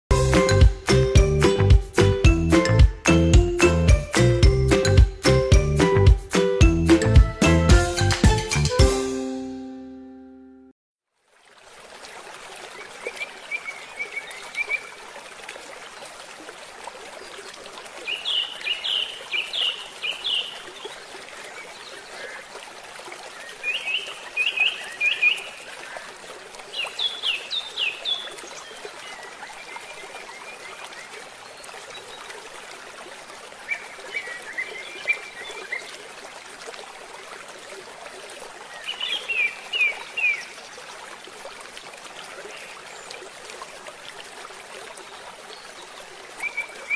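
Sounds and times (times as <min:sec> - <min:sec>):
songbird chirping: 0:18.1 - 0:22.4, 0:26.7 - 0:32.3, 0:38.7 - 0:40.6.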